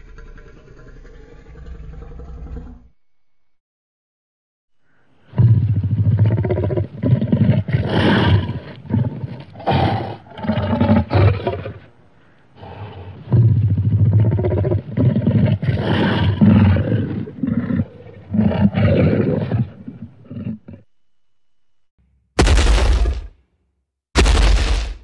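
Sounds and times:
deep growling creature roars: 0.0s - 3.0s.

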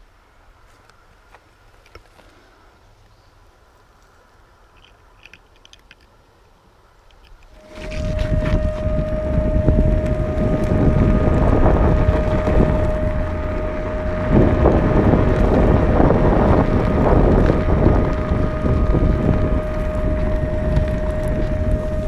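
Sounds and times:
steady high whine: 0.0s - 22.0s
wind buffeting microphone: 7.4s - 22.0s.

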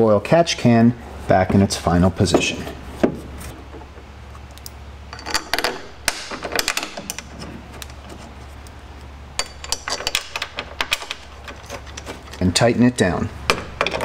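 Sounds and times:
metal parts clicking and knocking: 5.1s - 8.1s, 9.4s - 12.5s, 13.5s - 14.0s.

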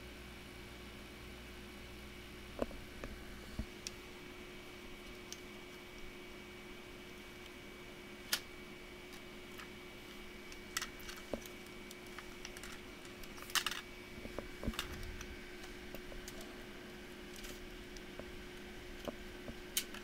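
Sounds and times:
faint steady hum: 0.0s - 20.0s
plastic laptop parts clicking: 10.5s - 15.3s, 19.8s - 20.0s.

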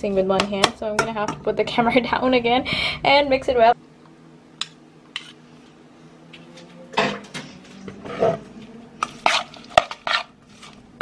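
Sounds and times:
faint steady hum: 0.0s - 11.0s
metal spoon scraping a pot: 5.1s - 5.4s, 9.0s - 10.8s.

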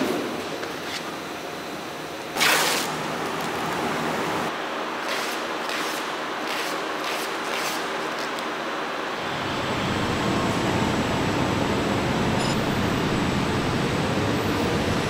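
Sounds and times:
steady factory hum: 0.0s - 15.0s
packing tape pulled off roll: 2.4s - 3.6s.

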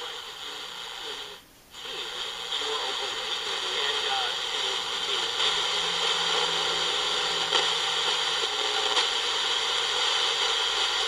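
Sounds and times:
faint radio crackles: 0.0s - 11.0s
radio static hiss: 0.0s - 11.0s.

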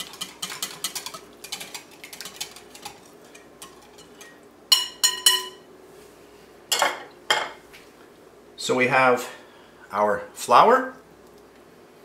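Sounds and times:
whisk ticking against glass bowl: 0.0s - 5.4s
whisk clinking on glass bowl: 0.0s - 5.6s.

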